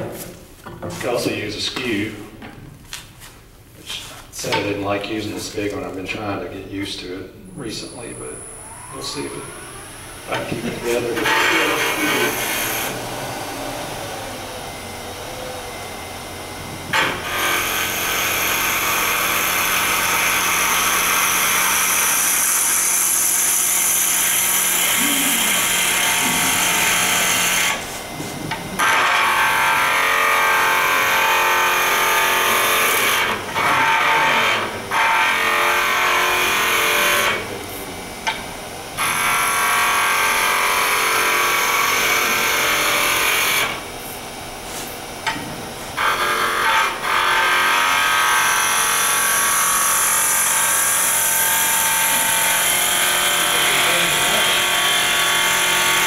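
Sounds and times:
lathe motor hum: 0:07.0 - 0:56.0
gouge cutting wood hiss: 0:16.9 - 0:28.9.

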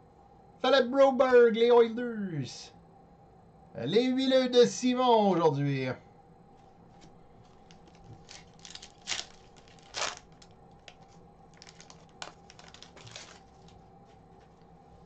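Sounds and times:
foil wrapper crinkling: 0:06.6 - 0:14.6
foil wrapper ripping: 0:07.0 - 0:13.8.

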